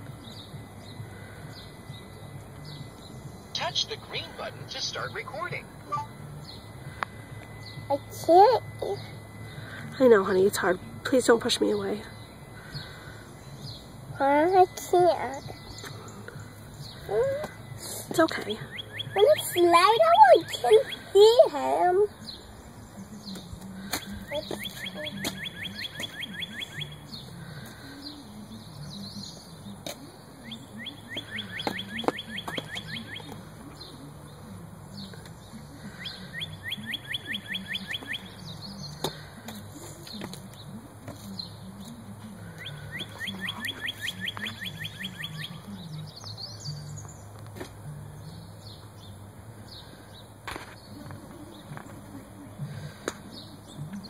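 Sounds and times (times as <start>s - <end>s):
low steady hum: 0.0s - 50.1s
songbird trilling: 18.6s - 21.2s, 36.0s - 39.0s, 42.6s - 46.9s.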